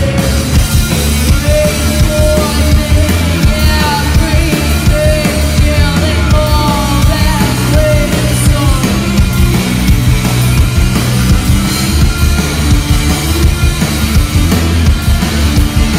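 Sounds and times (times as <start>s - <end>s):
lead vocal singing: 0.0s - 9.5s
punk rock band playing: 0.0s - 15.9s.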